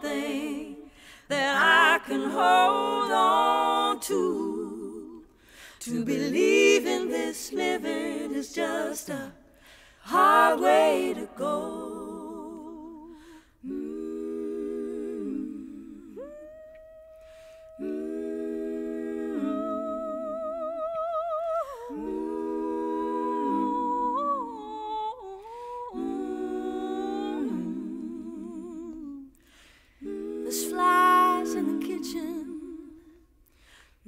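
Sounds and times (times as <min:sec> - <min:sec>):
women singing a cappella harmony: 0:00.0 - 0:34.0.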